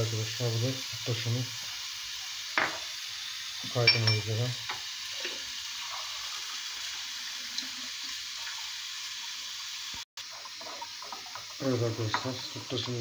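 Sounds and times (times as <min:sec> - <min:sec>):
milk hissing in a pot: 0:00.0 - 0:13.0.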